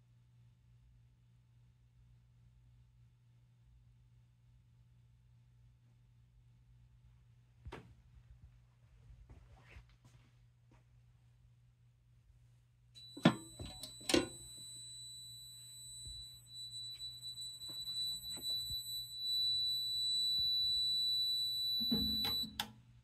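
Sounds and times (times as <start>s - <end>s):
low electrical hum: 0.0s - 23.0s
fire alarm buzzer tone: 13.0s - 22.7s.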